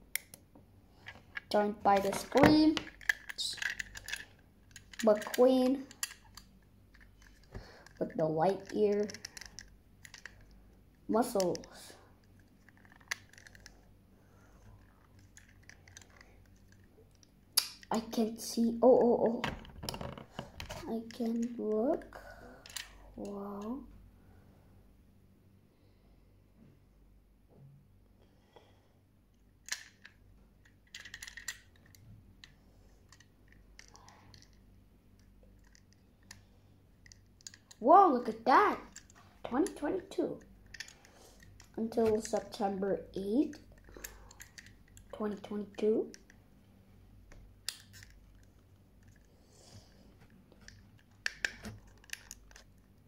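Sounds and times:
toys and packaging handled: 0:00.9 - 0:13.8, 0:14.7 - 0:18.1, 0:29.6 - 0:36.4, 0:37.0 - 0:46.4, 0:47.6 - 0:49.3, 0:49.9 - 0:53.0.

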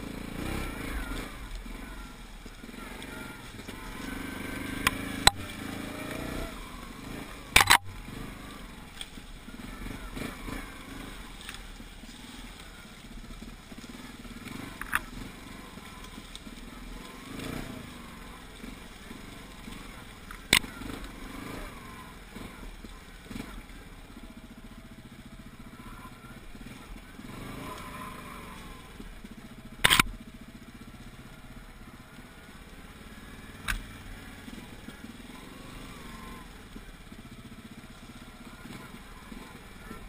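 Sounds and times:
atv engine running: 0:00.0 - 0:40.0
vehicle pushing through brush: 0:00.0 - 0:40.0.

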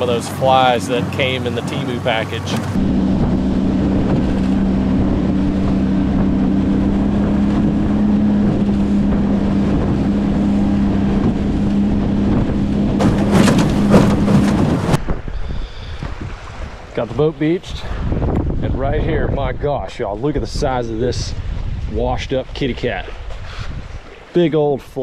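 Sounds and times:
outboard motor running: 0:00.0 - 0:17.0
water rushing past hull: 0:00.0 - 0:19.7
wind buffeting microphone: 0:00.0 - 0:25.0
knocks and splashes: 0:02.4 - 0:15.3.

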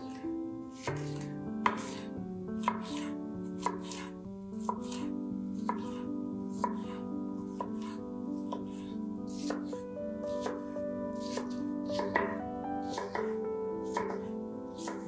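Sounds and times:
soft background music: 0:00.0 - 0:15.0
knife knocking on wooden board: 0:00.8 - 0:02.0, 0:11.2 - 0:15.0
knife slicing pepper on board: 0:00.8 - 0:15.0.

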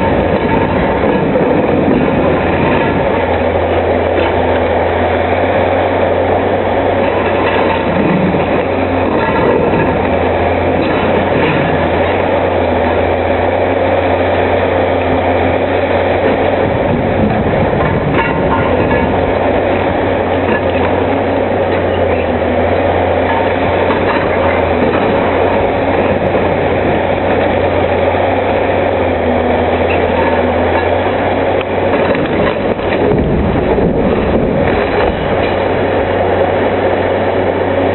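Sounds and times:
excavator engine hum: 0:00.0 - 0:37.9
concrete clattering and breaking: 0:06.9 - 0:12.2, 0:16.2 - 0:22.4, 0:23.2 - 0:27.8, 0:29.8 - 0:36.1.

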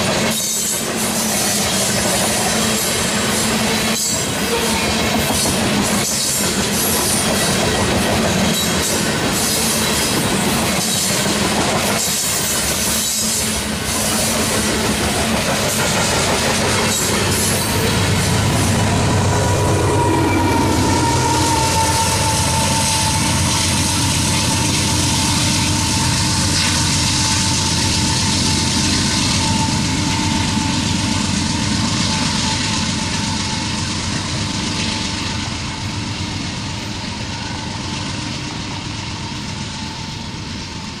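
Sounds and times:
diesel locomotive engine passing: 0:00.0 - 0:41.0
train wheels rumbling and rattling: 0:00.0 - 0:41.0.

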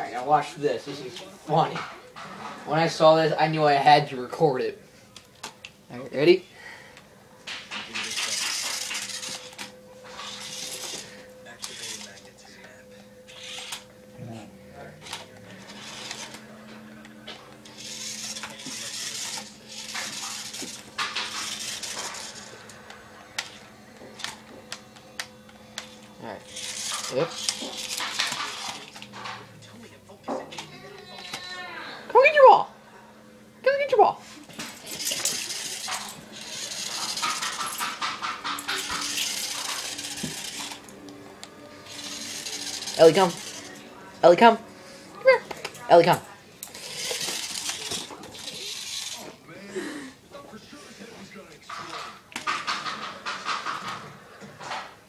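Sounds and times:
toy car electric motor whirring: 0:07.9 - 0:12.3, 0:13.3 - 0:13.9, 0:15.0 - 0:16.6, 0:17.3 - 0:29.4, 0:34.5 - 0:41.0, 0:41.8 - 0:43.9, 0:45.5 - 0:49.4
sharp clicks and rattles: 0:34.6 - 0:40.9, 0:51.7 - 0:54.1.

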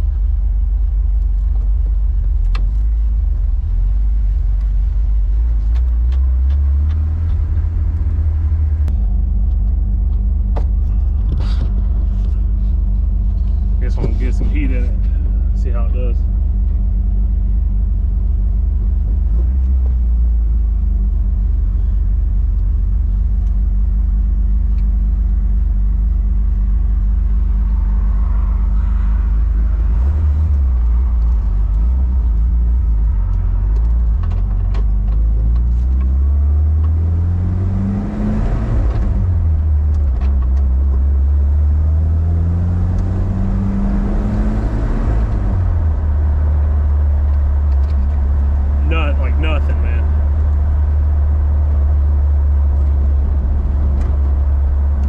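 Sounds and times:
turbocharged engine revving: 0:35.8 - 0:40.1, 0:41.1 - 0:55.0.

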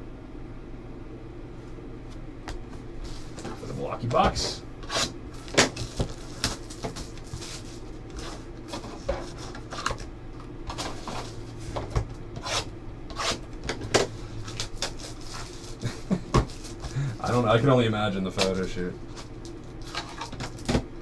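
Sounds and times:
steady low hum: 0:00.0 - 0:21.0
trading cards rubbing and sliding: 0:04.4 - 0:10.0, 0:14.4 - 0:15.8.

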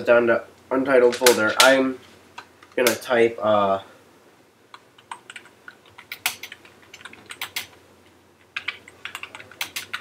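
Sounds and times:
computer keyboard typing: 0:04.7 - 0:07.8, 0:08.4 - 0:10.0.

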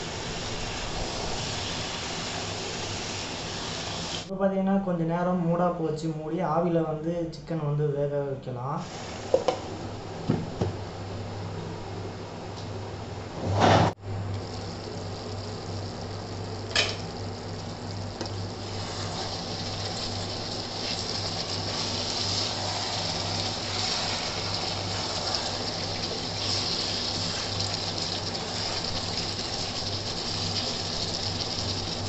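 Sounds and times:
gravy sizzling and bubbling: 0:00.0 - 0:04.3, 0:13.8 - 0:32.0
steady low hum: 0:04.3 - 0:32.0.

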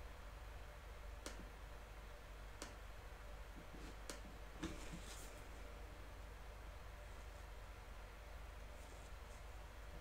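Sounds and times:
faint soft rustles: 0:04.6 - 0:05.7, 0:08.6 - 0:09.7.

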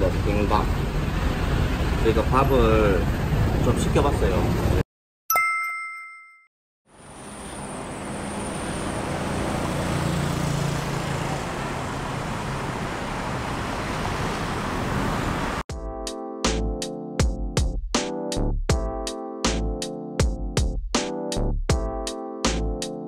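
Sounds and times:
cars and motorbikes passing: 0:00.0 - 0:04.8, 0:07.0 - 0:15.6
ringing chime: 0:05.3 - 0:06.5.

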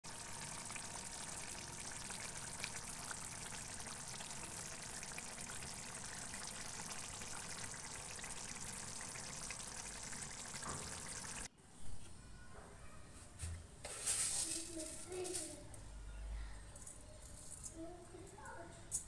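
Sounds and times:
curry simmering with hiss: 0:00.1 - 0:11.5
pops and crackles of bubbling oil: 0:00.1 - 0:11.5.

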